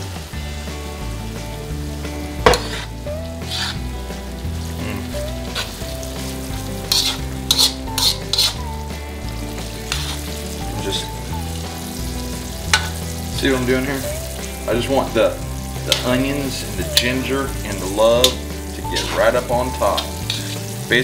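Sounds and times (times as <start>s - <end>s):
meat sizzling in oil: 0.0s - 21.0s
metal spoon scraping pan: 2.4s - 4.0s, 5.4s - 5.8s, 6.7s - 8.7s, 9.8s - 10.4s, 12.7s - 13.0s, 19.8s - 20.7s.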